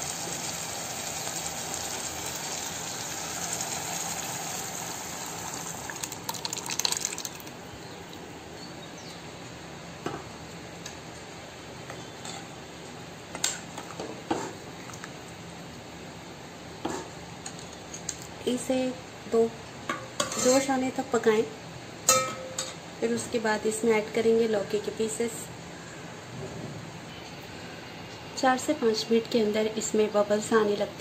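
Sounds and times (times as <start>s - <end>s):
steady hiss: 0.0s - 6.0s
lentils poured and splashing: 5.3s - 7.5s
metal spoon knocking a pan: 22.1s - 22.8s.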